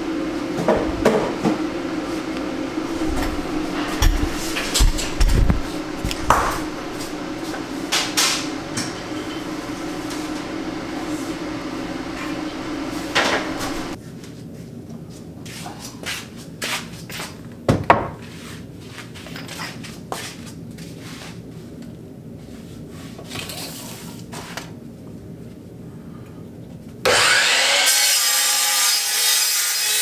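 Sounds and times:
low hum: 0:00.0 - 0:14.0
wooden board knocking on saw: 0:03.8 - 0:06.6.

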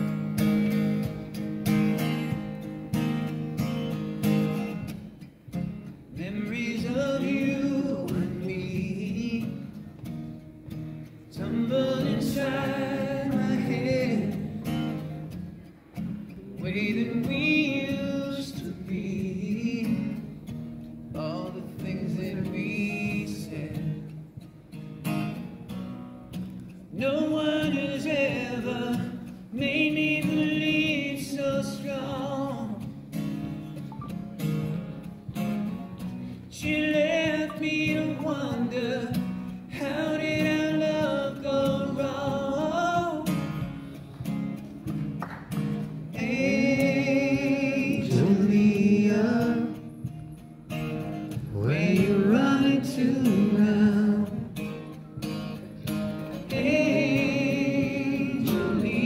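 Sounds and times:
strummed acoustic guitar: 0:00.0 - 0:59.0
man singing: 0:06.1 - 0:09.9, 0:11.2 - 0:14.8, 0:16.4 - 0:20.4, 0:21.1 - 0:24.1, 0:26.9 - 0:32.9, 0:36.5 - 0:43.6, 0:46.1 - 0:50.0, 0:51.4 - 0:54.6, 0:56.4 - 0:59.0.

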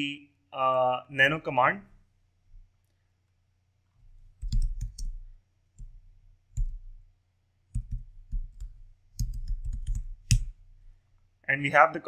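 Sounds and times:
keystrokes on computer keyboard: 0:04.4 - 0:05.2, 0:07.7 - 0:10.5.

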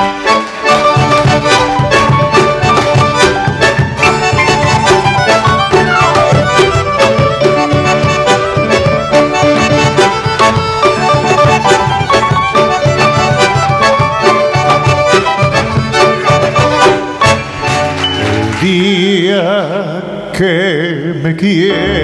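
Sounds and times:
instrumental ensemble playing: 0:00.0 - 0:19.1
hand claps: 0:17.7 - 0:18.9.

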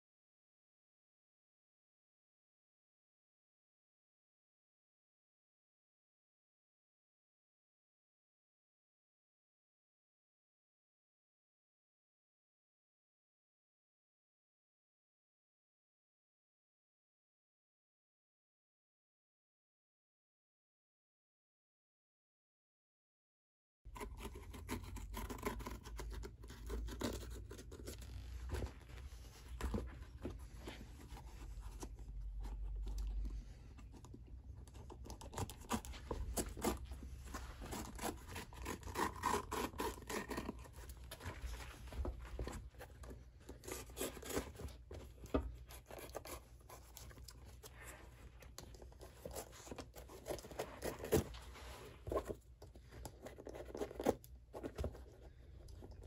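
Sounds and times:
small scrapes and scratches: 0:23.9 - 0:56.0.

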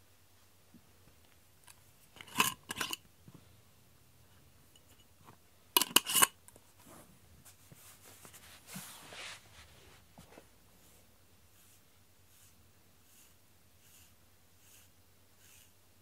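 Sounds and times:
metal jar lid clicking and scraping: 0:01.6 - 0:03.1, 0:04.7 - 0:05.1, 0:05.8 - 0:06.4
soft rustle: 0:06.5 - 0:15.8.

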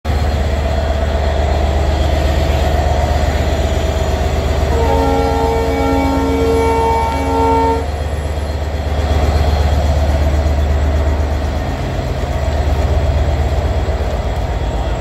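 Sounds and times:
train horn chord: 0:04.6 - 0:08.0.

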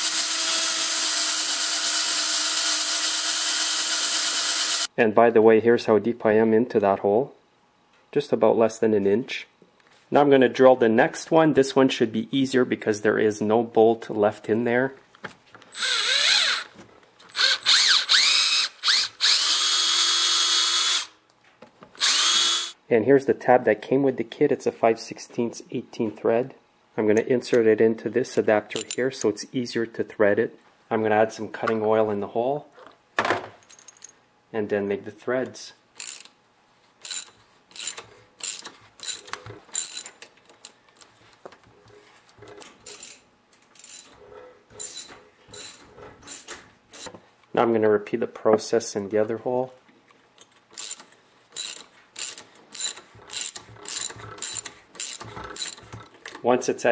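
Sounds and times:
cordless drill spinning: 0:00.0 - 0:04.9, 0:15.7 - 0:21.2, 0:22.0 - 0:22.8, 0:50.8 - 0:56.0.

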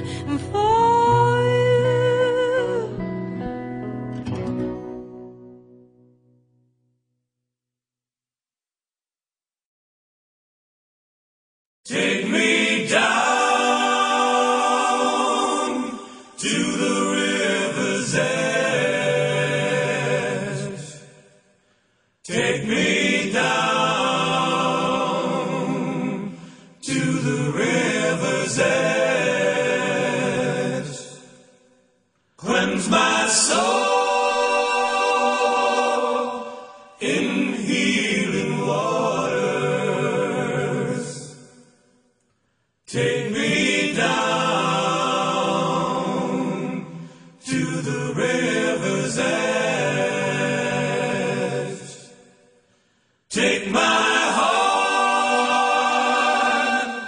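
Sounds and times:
choir singing sustained chords: 0:11.9 - 0:21.5, 0:22.2 - 0:31.7, 0:32.4 - 0:41.8, 0:42.9 - 0:57.0.

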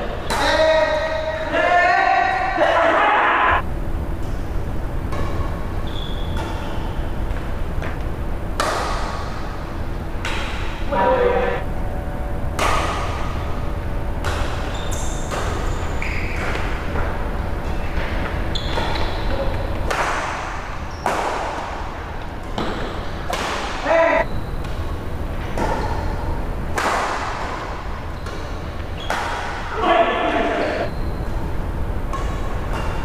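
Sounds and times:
steady low hum: 0:03.4 - 0:29.7
rackets striking shuttlecock: 0:08.6 - 0:09.4, 0:10.2 - 0:10.8, 0:12.5 - 0:16.7, 0:32.0 - 0:33.0.

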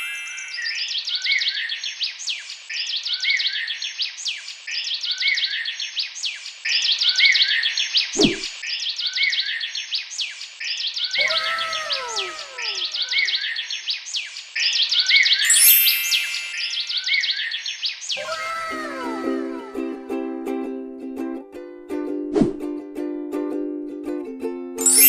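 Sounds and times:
birds chirping: 0:00.0 - 0:19.1
low thud: 0:08.2 - 0:08.5.

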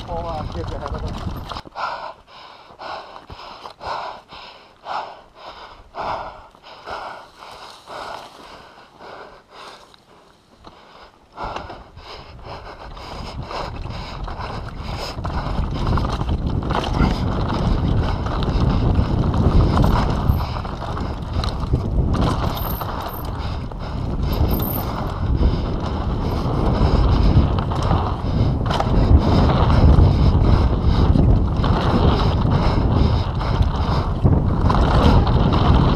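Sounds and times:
bike tyres rumbling over dirt: 0:00.0 - 0:02.0, 0:11.4 - 0:35.9.

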